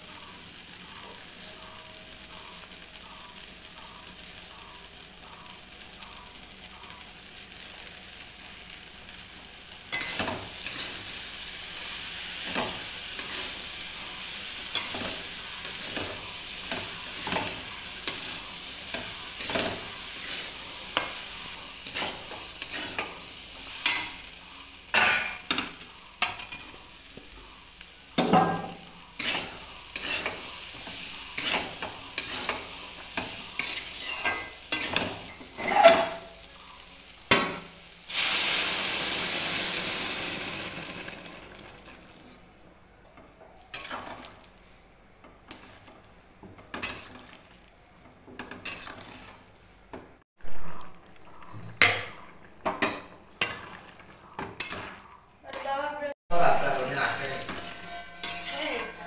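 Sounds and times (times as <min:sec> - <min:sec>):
vegetables sizzling in oil: 0:00.0 - 0:42.6, 0:43.2 - 0:49.7, 0:50.4 - 0:59.0
metal spatula scraping wok: 0:09.9 - 0:24.4, 0:28.2 - 0:36.4, 0:46.7 - 0:47.4, 0:48.4 - 0:49.4, 0:51.2 - 0:55.1, 0:56.3 - 0:59.0.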